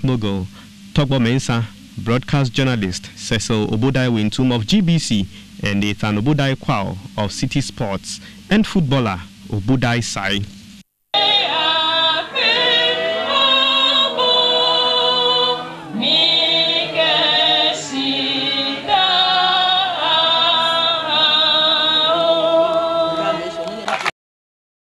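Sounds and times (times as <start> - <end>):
women singing together: 11.2 - 23.9.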